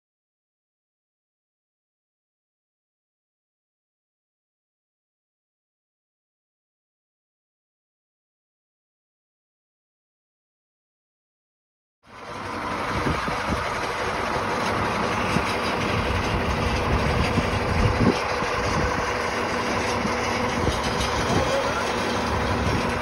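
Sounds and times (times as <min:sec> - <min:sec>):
diesel engine idling: 0:12.1 - 0:23.0.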